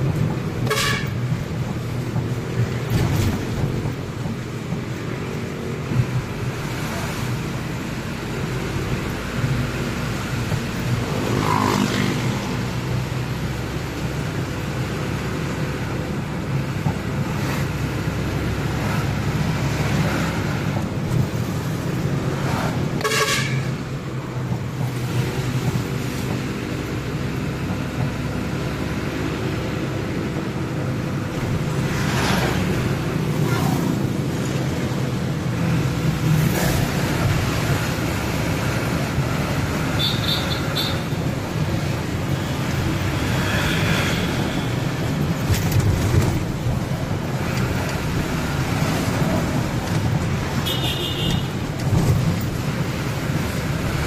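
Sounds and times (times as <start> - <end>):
truck engine and road noise: 0.0 - 54.0
vehicle horn toot: 0.6 - 1.2, 23.0 - 23.7, 40.0 - 41.0, 50.6 - 51.5.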